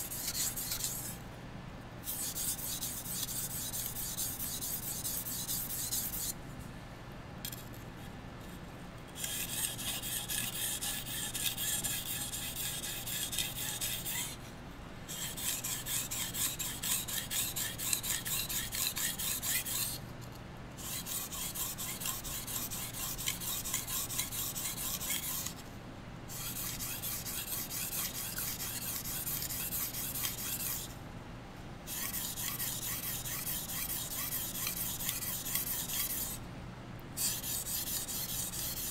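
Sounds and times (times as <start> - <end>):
knife scraping on whetstone: 0.0 - 1.2, 2.1 - 6.3, 9.2 - 14.4, 15.1 - 20.0, 20.8 - 25.6, 26.3 - 30.9, 31.9 - 36.4, 37.2 - 38.9.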